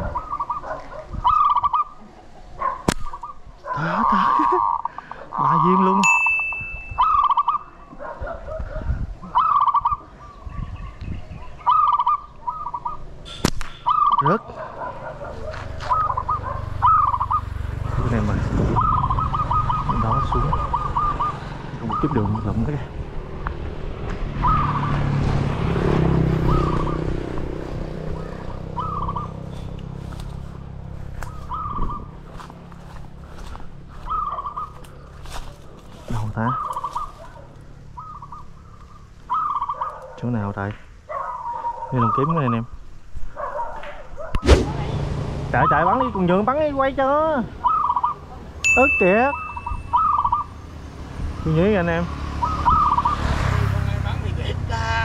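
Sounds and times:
wind rumbling on microphone: 0.0 - 3.7, 6.6 - 13.2, 15.3 - 38.3
pigeons whistling calls: 0.0 - 5.8, 6.6 - 22.7, 24.3 - 25.2, 26.3 - 40.1, 41.1 - 42.7, 45.6 - 46.6, 47.5 - 53.6
sharp snap: 2.9 - 3.2, 13.4 - 13.8, 43.8 - 44.7
pigeon warbling whistle: 6.8 - 7.9, 11.6 - 14.3, 15.8 - 17.5, 18.7 - 22.4, 24.4 - 25.0, 26.4 - 27.1, 28.2 - 29.4, 31.3 - 32.1, 34.0 - 34.8, 38.0 - 40.0, 47.6 - 50.6, 52.3 - 53.4.

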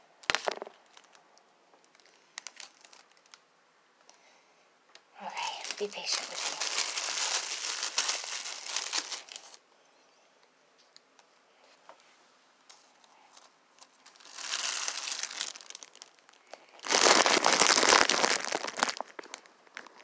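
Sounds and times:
plastic sheeting crinkling: 0.2 - 1.2, 1.9 - 3.4, 5.3 - 9.6, 13.3 - 20.0.

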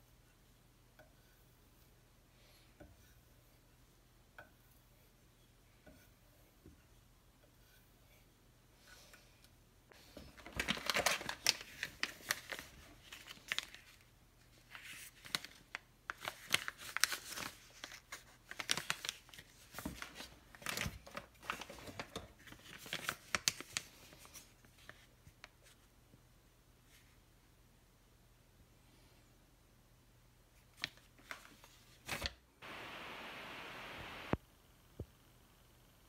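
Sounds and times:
plastic bags crinkling: 10.4 - 13.9.

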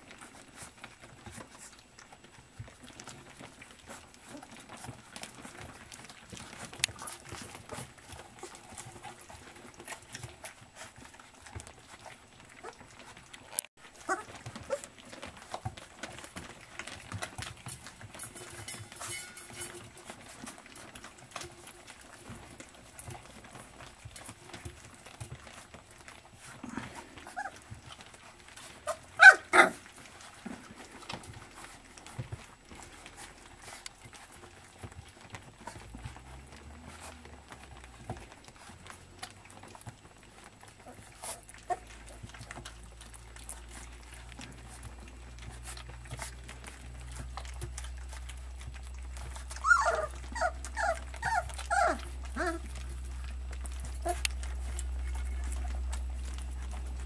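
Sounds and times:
puppies eating from metal trough: 0.0 - 57.0
puppy whimpers: 12.0 - 13.1, 14.0 - 15.2, 26.5 - 28.0, 28.8 - 30.0, 40.7 - 44.8, 45.5 - 57.0
puppy yelps: 14.0 - 14.9, 27.2 - 27.6, 28.8 - 29.8, 49.5 - 52.8.

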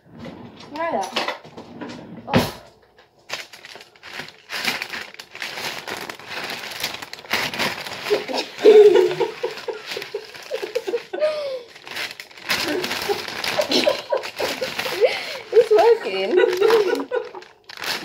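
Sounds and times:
sticky popcorn crinkling and crackling: 3.2 - 18.0
girl laughing: 8.0 - 11.8, 12.6 - 17.5.

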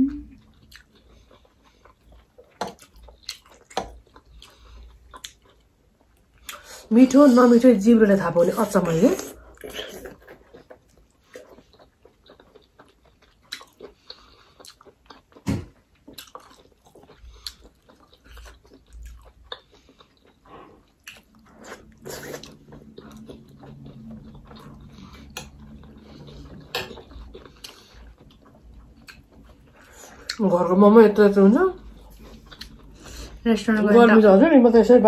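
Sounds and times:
low steady hum: 0.0 - 35.0
wet chewing and sucking: 9.1 - 30.4, 31.8 - 33.4.

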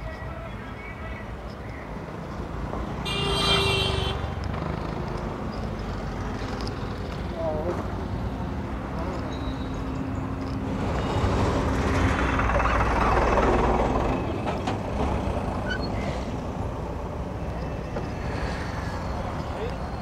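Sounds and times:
road traffic: 0.0 - 20.0
heavy truck passing: 2.5 - 20.0.

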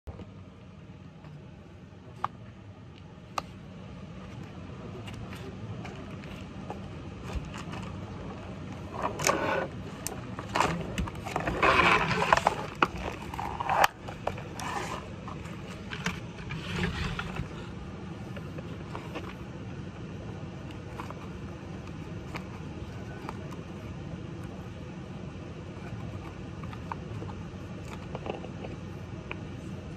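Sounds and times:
low hum: 0.0 - 29.9
scraping and knocking on a floor: 5.0 - 17.8.

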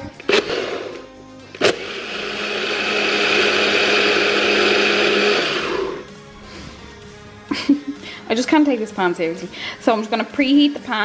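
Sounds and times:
blender whirring: 0.1 - 6.1.

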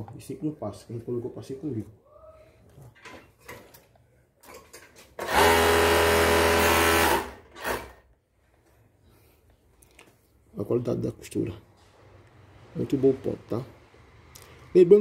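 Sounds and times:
overlock sewing machine humming: 5.2 - 8.0.

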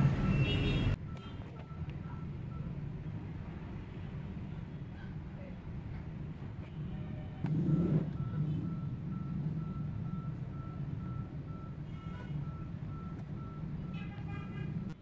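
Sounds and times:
reversing alarm beeping: 0.0 - 2.8, 7.5 - 14.0
low steady rumble: 5.7 - 14.7.

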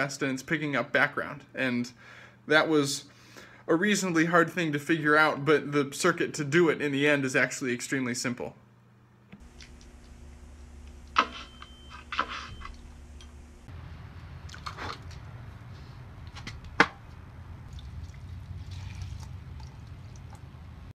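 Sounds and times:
steady low hum: 6.7 - 20.9.

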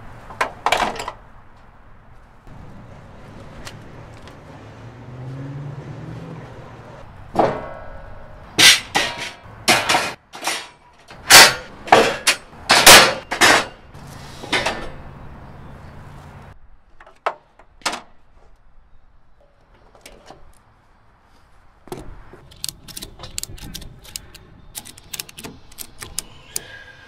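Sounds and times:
sharp clicks: 22.5 - 26.7.

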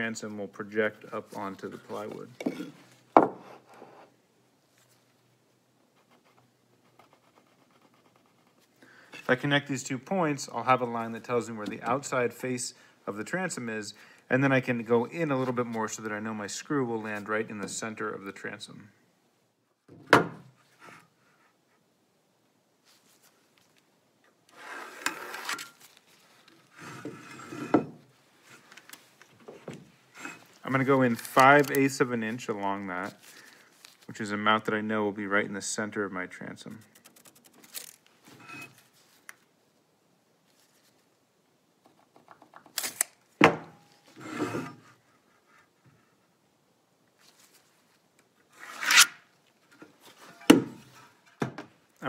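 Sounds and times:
metal level scraping across wood: 24.5 - 25.8, 26.6 - 27.9, 30.1 - 31.7, 38.3 - 38.9, 44.1 - 45.0, 48.5 - 49.2.

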